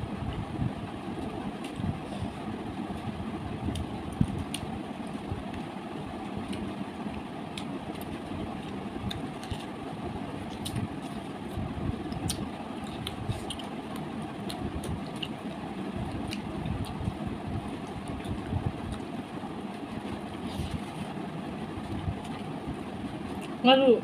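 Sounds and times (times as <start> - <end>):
low background rumble: 0.0 - 24.0
crunching while chewing: 3.6 - 5.5, 7.5 - 19.1.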